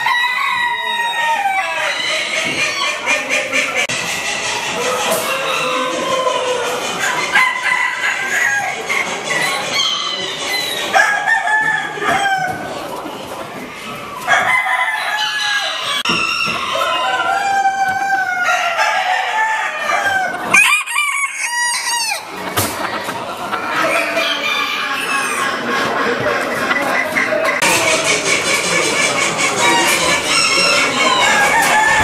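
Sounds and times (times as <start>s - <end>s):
roosters crowing: 0.0s - 12.9s, 14.1s - 26.2s, 27.2s - 32.0s
chickens clucking: 0.0s - 32.0s.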